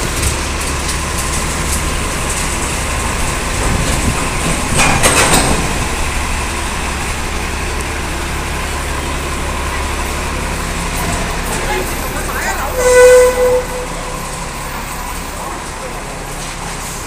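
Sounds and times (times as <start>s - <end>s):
clattering noise: 0.0s - 6.7s
bus engine rumble: 0.0s - 17.0s.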